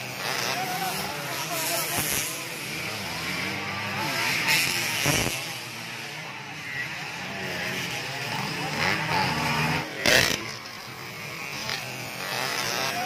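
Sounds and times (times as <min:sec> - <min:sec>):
dirt bike engines revving: 0:00.0 - 0:13.0
onlookers' voices: 0:00.0 - 0:13.0.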